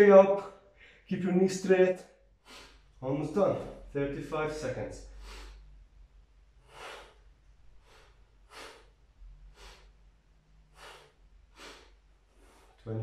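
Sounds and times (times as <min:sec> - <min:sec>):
man breathing hard: 0:02.4 - 0:02.9, 0:05.0 - 0:05.9, 0:06.6 - 0:10.0, 0:10.6 - 0:12.8.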